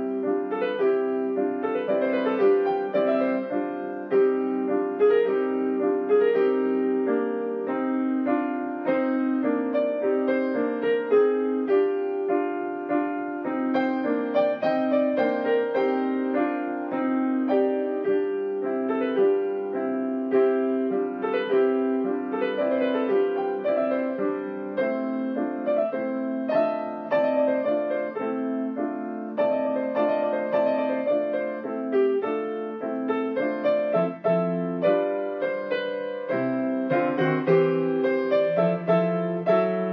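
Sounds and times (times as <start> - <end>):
solo piano music: 0.0 - 39.9.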